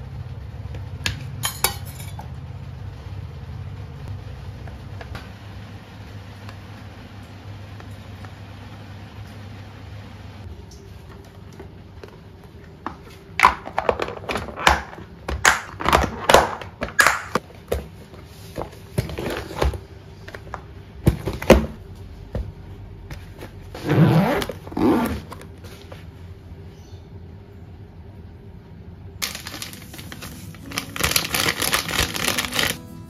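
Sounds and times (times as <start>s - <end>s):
zipper being pulled closed: 23.7s - 25.4s.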